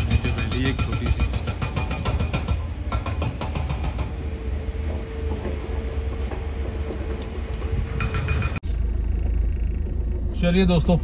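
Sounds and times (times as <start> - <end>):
van engine rumbling: 0.0 - 11.0
steady hum: 4.2 - 11.0.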